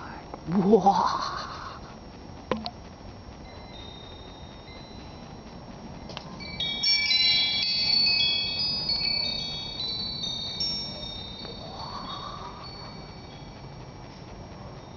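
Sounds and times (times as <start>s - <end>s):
metal tube wind chime ringing: 3.4s - 14.0s.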